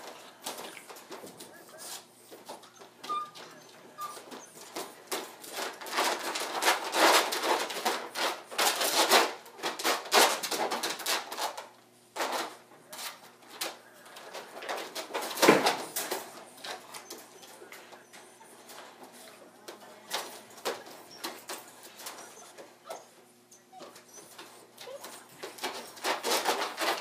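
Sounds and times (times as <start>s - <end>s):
dog rattling wire crate: 2.4s - 17.6s, 23.8s - 27.0s.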